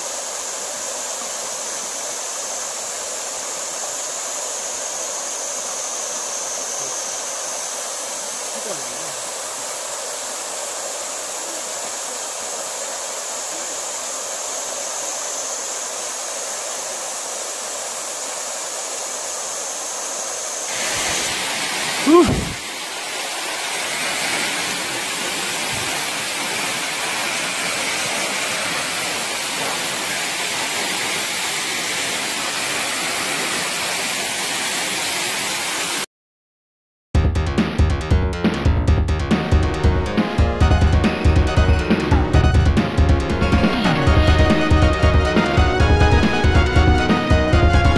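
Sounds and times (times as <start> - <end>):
waterfall rushing: 0.0 - 36.1, 40.2 - 47.9.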